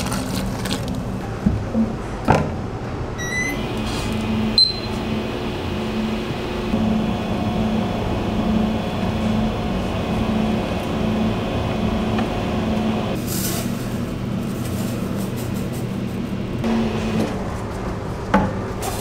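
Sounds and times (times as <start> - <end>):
dough mixer motor humming: 3.5 - 13.2.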